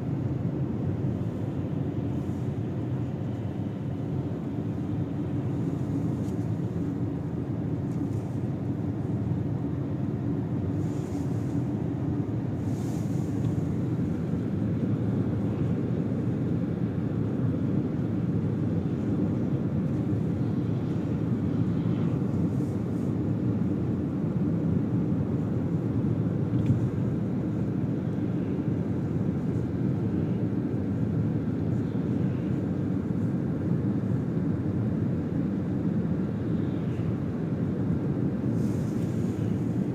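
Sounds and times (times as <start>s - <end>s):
car cabin road and engine drone: 0.1s - 30.4s
small click: 26.5s - 26.8s.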